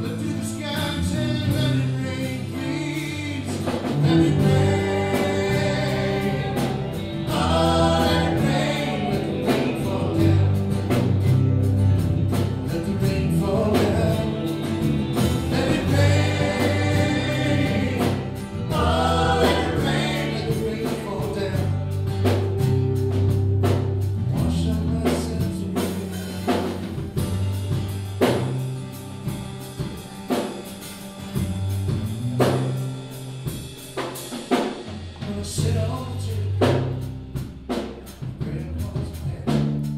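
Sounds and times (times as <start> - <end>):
lead and backing vocals: 0.0 - 11.6, 12.3 - 23.0, 24.3 - 27.2
drums: 0.0 - 39.9
live band playing: 0.0 - 39.9.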